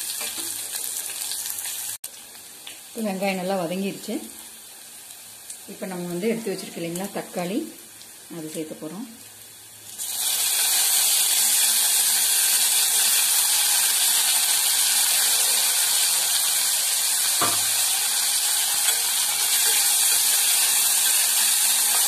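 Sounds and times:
tomatoes sizzling in hot oil: 0:00.0 - 0:22.0.

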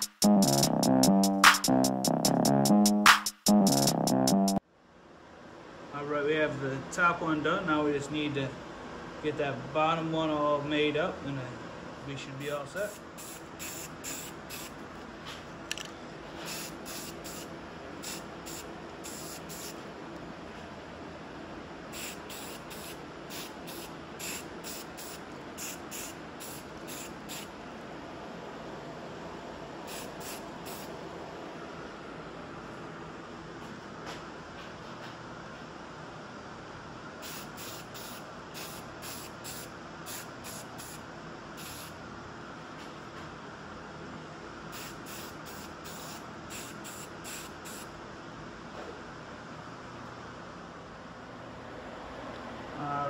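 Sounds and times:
spray-paint can hissing: 0:12.8 - 0:14.8, 0:16.4 - 0:19.8, 0:21.9 - 0:27.5, 0:29.9 - 0:30.9, 0:37.2 - 0:41.0, 0:41.6 - 0:42.0, 0:44.7 - 0:47.9.

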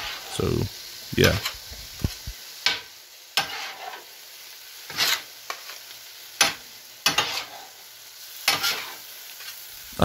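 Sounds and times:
metal spatulas scraping griddle: 0:00.0 - 0:00.5, 0:03.4 - 0:04.1, 0:04.8 - 0:05.8, 0:06.4 - 0:07.8, 0:08.4 - 0:09.6
steady sizzle: 0:00.0 - 0:10.0.

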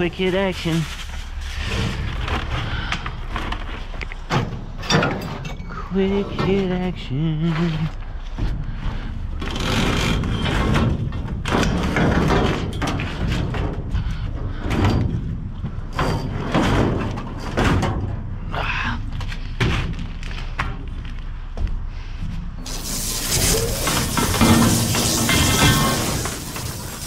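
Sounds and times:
metal conduit clanking and scraping: 0:00.0 - 0:06.9, 0:07.6 - 0:18.4
hollow thumps from dumpster: 0:10.5 - 0:18.3.

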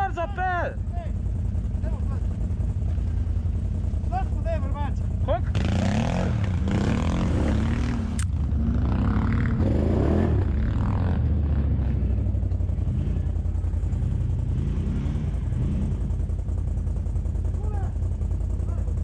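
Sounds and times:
atv engine running: 0:00.0 - 0:19.0
sharp click: 0:08.1 - 0:08.3.

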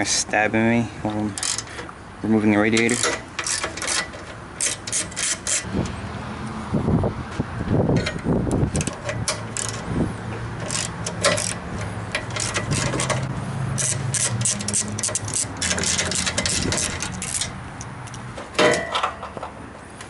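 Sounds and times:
hand ratchet clicking: 0:01.4 - 0:01.8, 0:02.8 - 0:05.7, 0:08.0 - 0:09.9, 0:10.6 - 0:18.2.

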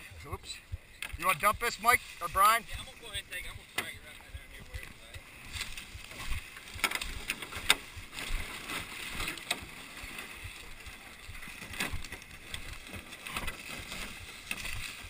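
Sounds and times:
boat knocking and scraping: 0:00.0 - 0:15.0
footsteps crunching through leaves: 0:05.3 - 0:15.0.

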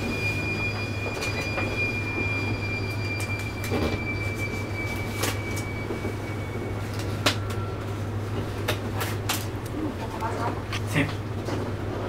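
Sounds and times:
high-pitched whine: 0:00.0 - 0:08.5
low hum: 0:00.0 - 0:10.2.

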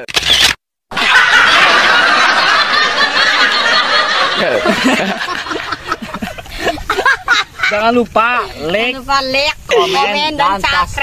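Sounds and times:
loud laughter: 0:00.9 - 0:08.0.

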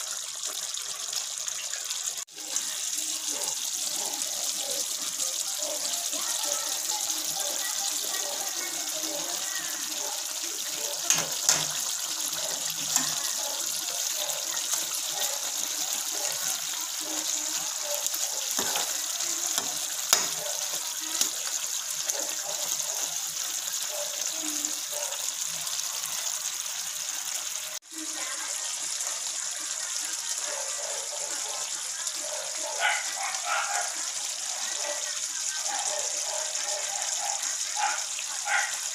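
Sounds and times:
stew simmering with watery hiss: 0:00.0 - 0:38.9
spatula clicking against pan: 0:11.0 - 0:13.3, 0:19.5 - 0:21.4.

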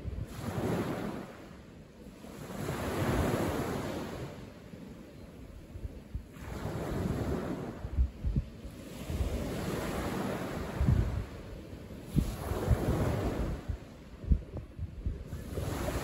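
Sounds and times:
wind buffeting microphone: 0:00.0 - 0:01.5, 0:05.3 - 0:16.0.

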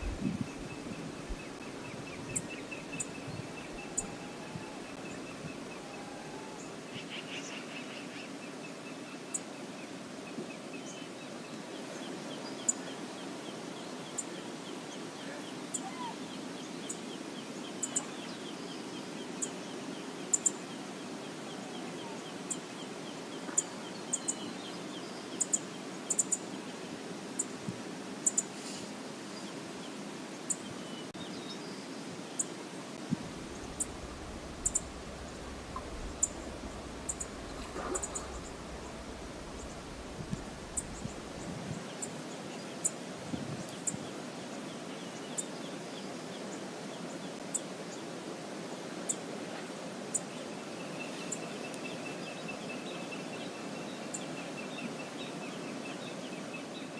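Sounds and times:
low rumble: 0:00.0 - 0:01.5, 0:33.0 - 0:41.7
rushing river water: 0:09.6 - 0:56.9
bird trilling: 0:33.4 - 0:41.4.

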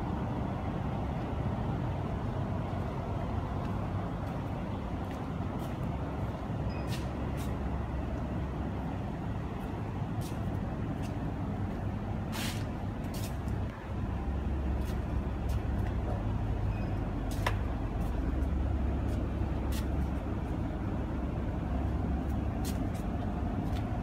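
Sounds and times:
short hissing bursts: 0:12.3 - 0:13.3.

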